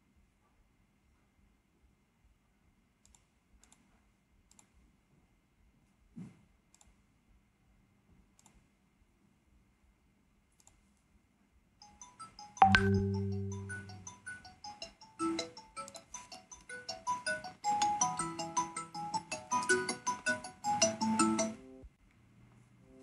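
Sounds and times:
mouse clicks: 3.0 - 3.8, 4.5 - 4.8, 12.6 - 13.0
loud low chord: 12.6 - 14.0
electronic ringtone tune: 12.6 - 14.3.

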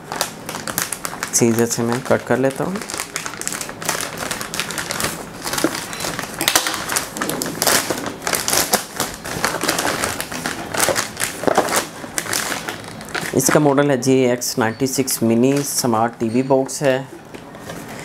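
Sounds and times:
plastic mailer crinkling: 0.0 - 13.8.

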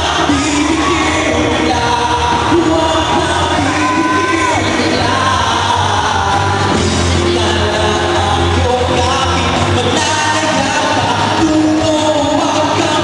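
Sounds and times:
heavy bass: 0.0 - 13.0
person singing into microphone: 0.0 - 13.0
pop song over loudspeakers: 0.0 - 13.0.

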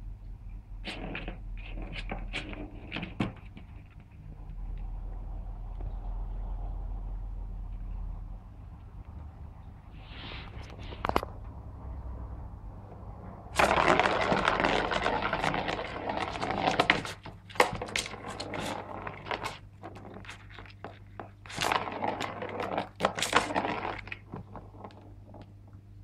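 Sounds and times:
cat scratching cardboard: 0.8 - 5.2, 13.5 - 25.5.

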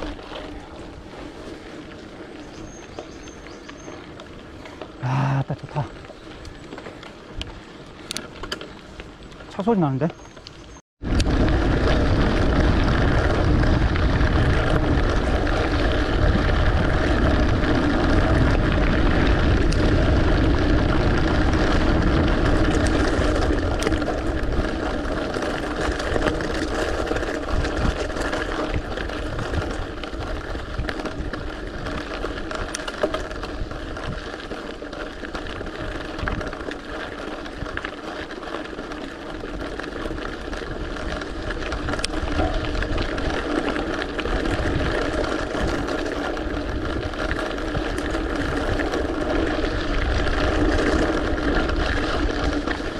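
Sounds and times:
bike tyres rumbling on gravel: 0.0 - 52.9
wind buffeting microphone: 11.0 - 38.2, 39.2 - 52.9.

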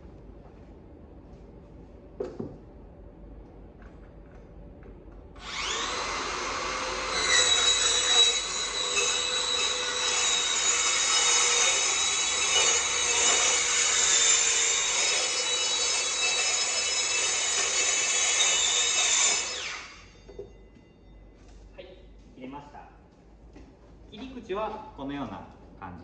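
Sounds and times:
circular saw cutting metal: 5.4 - 20.2.

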